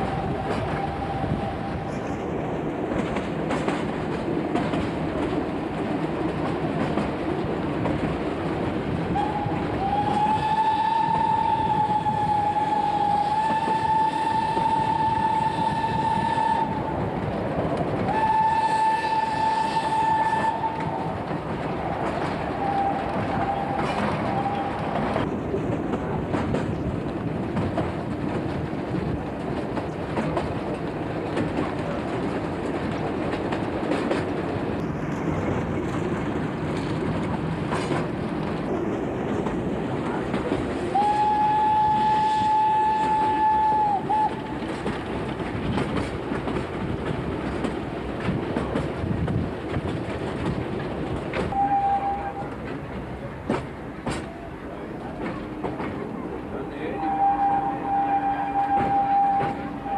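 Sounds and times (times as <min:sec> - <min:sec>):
steam locomotive whistle: 0:00.0 - 0:02.0, 0:09.2 - 0:17.0, 0:18.1 - 0:21.2, 0:22.5 - 0:25.0, 0:40.9 - 0:44.5, 0:51.4 - 0:52.6, 0:56.8 - 0:59.9
train carriages rattling on track: 0:00.0 - 0:59.9.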